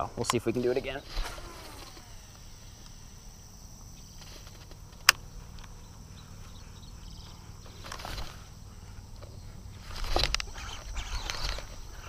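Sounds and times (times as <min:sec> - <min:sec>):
insect hum: 0:00.0 - 0:12.0
faint ticks: 0:01.8 - 0:03.0, 0:03.8 - 0:12.0.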